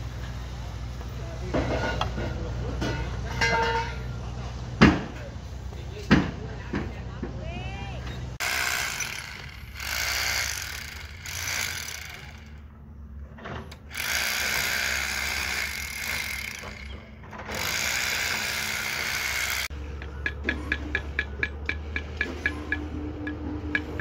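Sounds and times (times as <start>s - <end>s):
power tool on concrete: 8.4s - 12.7s, 13.7s - 20.8s.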